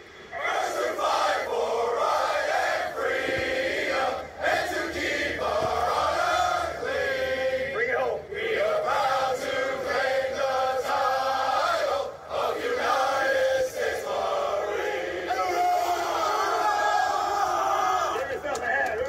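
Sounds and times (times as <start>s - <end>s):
group of men singing in unison: 0.4s - 15.4s.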